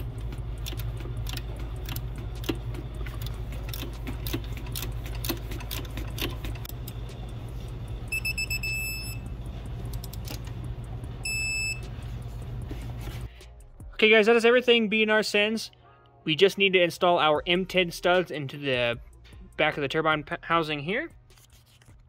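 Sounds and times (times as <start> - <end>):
wrench clicking: 0.2 - 7.0
torque wrench beeping: 8.0 - 9.3, 11.2 - 12.0.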